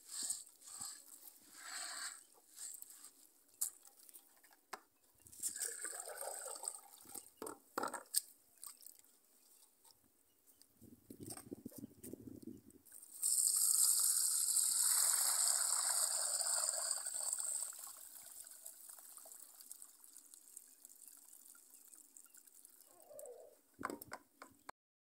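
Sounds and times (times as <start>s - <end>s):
water gushing through a sieve: 5.3s - 7.2s, 13.0s - 23.0s.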